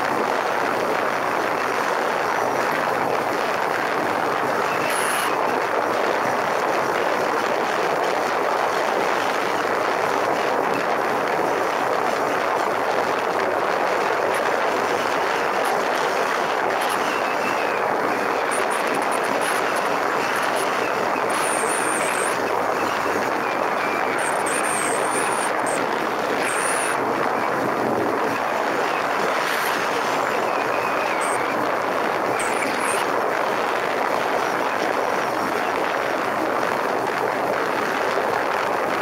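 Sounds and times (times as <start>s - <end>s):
wind rushing over camera: 0.0s - 39.0s
motorcycle engine running: 14.3s - 35.6s.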